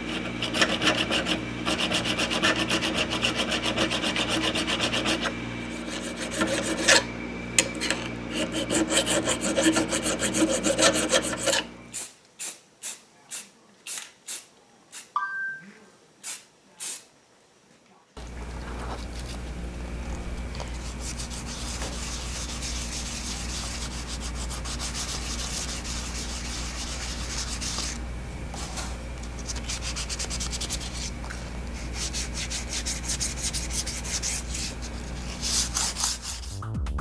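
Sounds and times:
sandpaper rubbing on metal: 0.0s - 7.1s, 7.9s - 12.6s, 20.8s - 28.0s, 29.4s - 31.2s, 31.8s - 36.7s
low steady hum: 18.1s - 37.0s.

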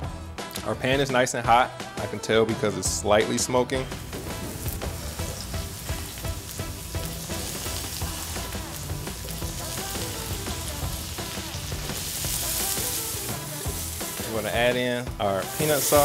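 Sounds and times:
background music with beat: 0.0s - 16.0s
vegetables sizzling in oil: 3.9s - 16.0s.

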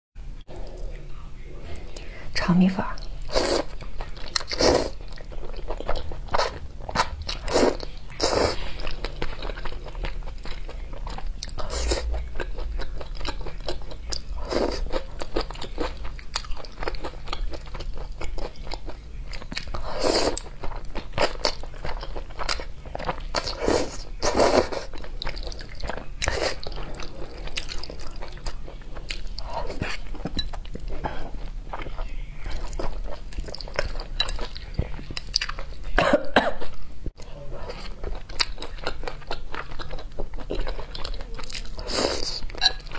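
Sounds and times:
wet chewing and smacking: 20.4s - 36.0s, 37.2s - 42.9s.

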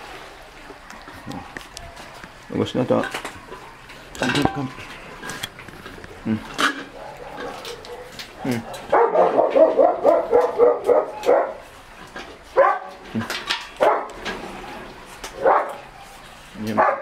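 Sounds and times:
small dog yapping: 6.9s - 11.6s.

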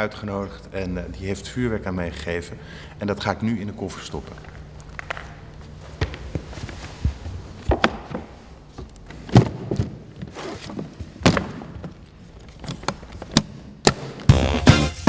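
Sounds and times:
packages knocking and thudding: 4.9s - 14.4s.

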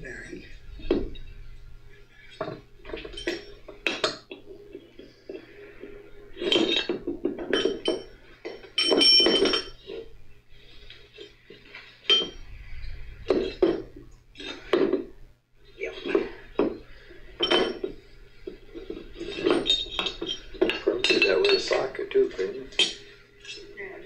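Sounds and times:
metal tools clanking on workbench: 2.3s - 4.5s, 6.4s - 10.1s, 11.2s - 12.4s, 17.4s - 23.7s
metal rattle: 6.3s - 10.1s, 16.1s - 23.7s.

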